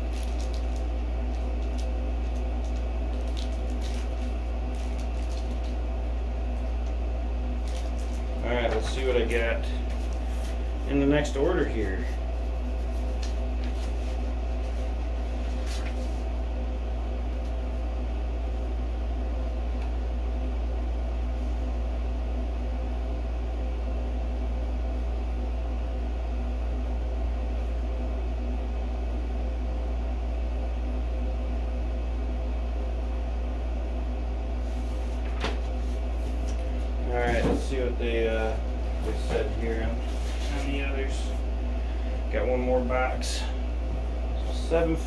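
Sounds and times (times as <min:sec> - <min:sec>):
low mechanical hum: 0:00.0 - 0:45.0
paper and cardboard rustling: 0:12.8 - 0:16.3, 0:38.9 - 0:40.8.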